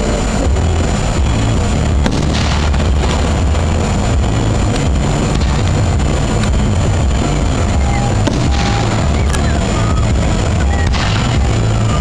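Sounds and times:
crackling hiss: 0:00.0 - 0:12.0
low rumble: 0:00.0 - 0:12.0
firework bang: 0:01.8 - 0:06.8, 0:08.1 - 0:09.4, 0:10.7 - 0:11.9.

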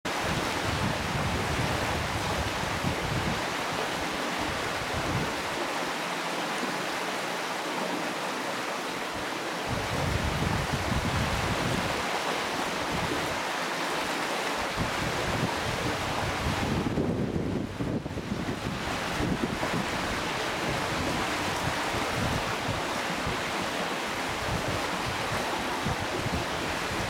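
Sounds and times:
wind buffeting microphone: 0:00.1 - 0:05.6, 0:09.6 - 0:12.1, 0:14.6 - 0:27.0
river water rushing: 0:00.1 - 0:27.0.

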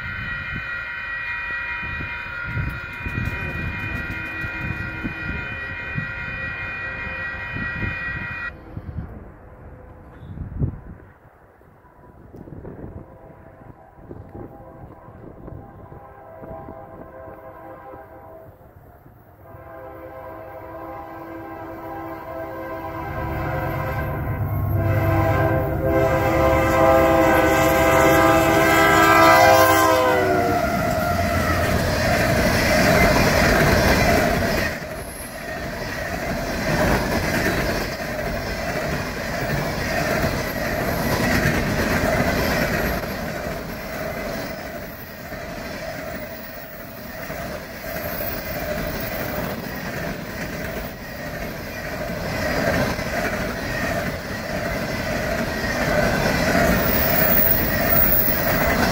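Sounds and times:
locomotive air horn: 0:00.0 - 0:09.0, 0:11.9 - 0:33.0
train cars rumbling on rails: 0:00.0 - 0:58.9.

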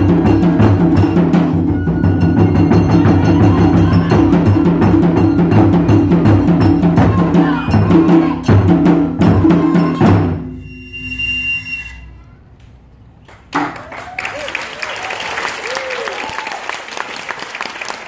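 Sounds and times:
barrel drums in driving rhythm: 0:00.0 - 0:10.5
high flute note: 0:09.4 - 0:12.4.

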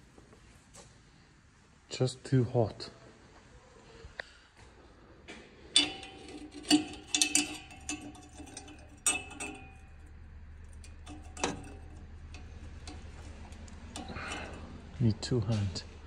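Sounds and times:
metallic clinks and taps: 0:05.7 - 0:15.0.

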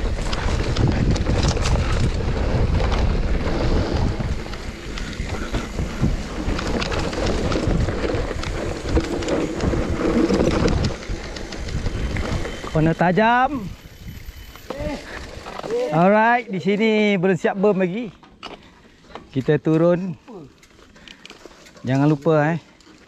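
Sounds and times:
wind on microphone: 0:00.0 - 0:15.8
bike rattling over bumps: 0:00.0 - 0:23.0
tyres rolling on dirt: 0:00.0 - 0:23.0.

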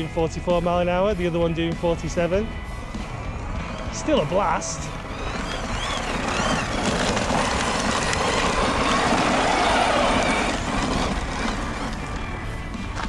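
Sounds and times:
electric motor whine: 0:03.5 - 0:12.4
tyres scrabbling on dirt: 0:04.9 - 0:13.0.

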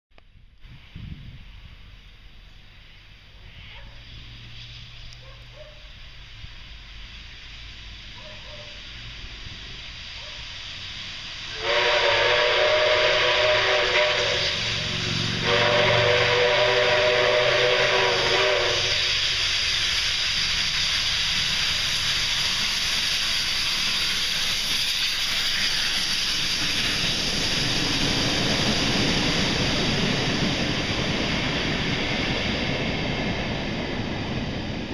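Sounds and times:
loud hiss of steam and exhaust: 0:00.3 - 0:34.9
steam locomotive whistle: 0:10.1 - 0:19.4
carriage wheels rolling on rail: 0:16.9 - 0:34.9.

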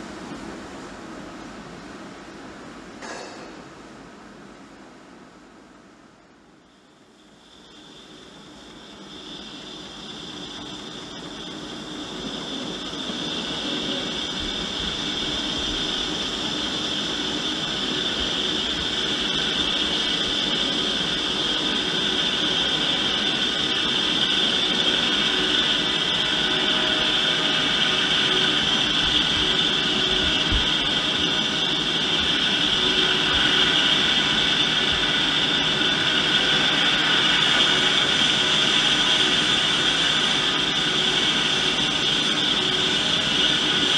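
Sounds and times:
lathe cutting metal with whine: 0:07.0 - 0:43.9.

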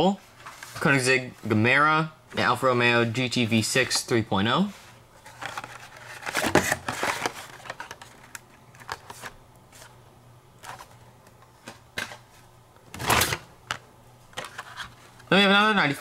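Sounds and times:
cards rustling: 0:04.6 - 0:10.0, 0:10.6 - 0:12.4, 0:14.3 - 0:16.0
cardboard and plastic crinkling: 0:05.2 - 0:09.9, 0:14.4 - 0:15.4.

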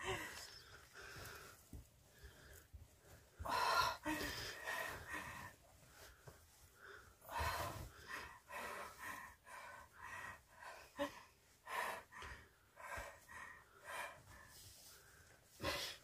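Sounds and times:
woman gasping breaths: 0:00.0 - 0:06.1.

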